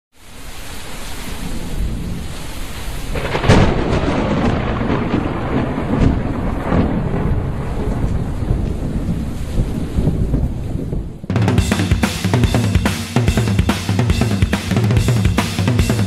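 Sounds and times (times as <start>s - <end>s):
rain hiss: 0.2s - 9.8s, 11.5s - 16.0s
thunder crack and rumbling: 1.4s - 12.8s.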